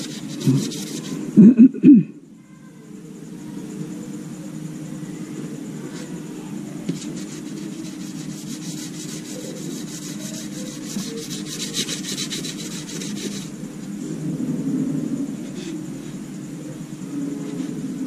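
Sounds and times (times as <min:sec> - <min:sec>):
sanding pad scraping plastic: 0:00.0 - 0:01.3, 0:06.9 - 0:13.5
steady low hum: 0:00.0 - 0:18.0.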